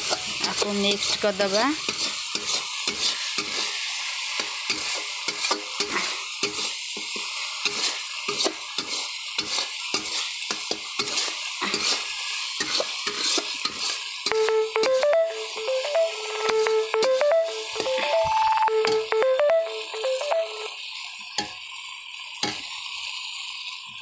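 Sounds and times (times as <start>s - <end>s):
masala sizzling in oil: 0.0s - 14.7s, 20.6s - 24.0s
beeping tune: 14.3s - 20.7s.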